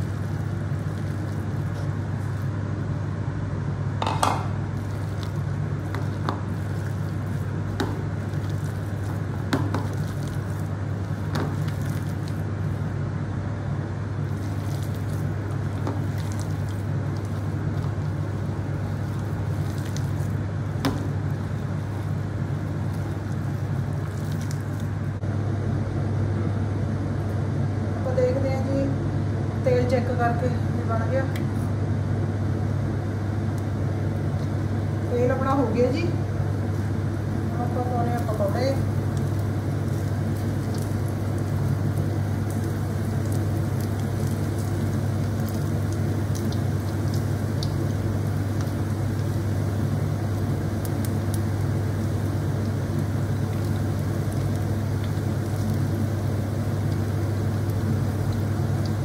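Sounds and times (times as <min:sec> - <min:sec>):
hand squelching batter: 0:00.0 - 0:02.6, 0:04.7 - 0:12.9, 0:14.3 - 0:25.1, 0:36.4 - 0:59.0.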